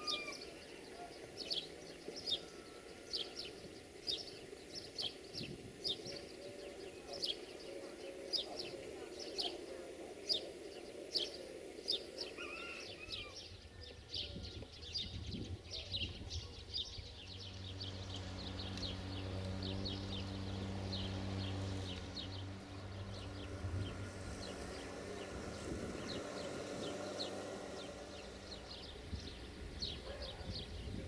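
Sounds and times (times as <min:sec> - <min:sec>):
small birds chirping: 0:00.0 - 0:31.0
diesel locomotive engine humming: 0:16.4 - 0:31.0.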